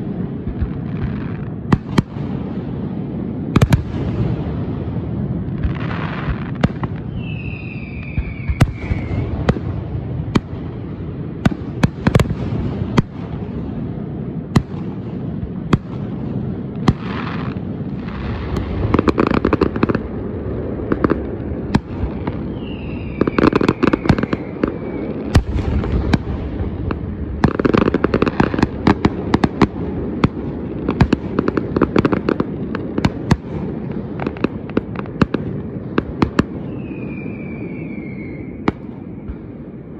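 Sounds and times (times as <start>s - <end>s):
fireworks bangs and crackles: 0.0s - 39.9s
falling firework whistle: 5.6s - 9.8s, 21.7s - 26.4s, 36.2s - 39.6s.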